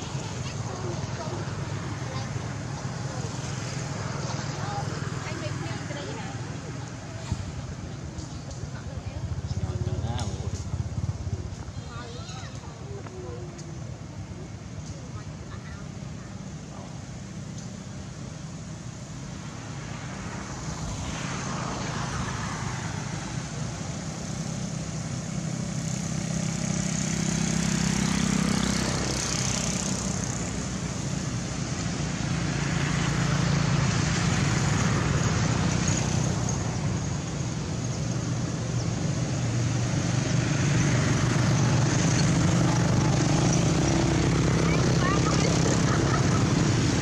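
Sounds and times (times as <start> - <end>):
motor engine humming: 36.2 - 47.0.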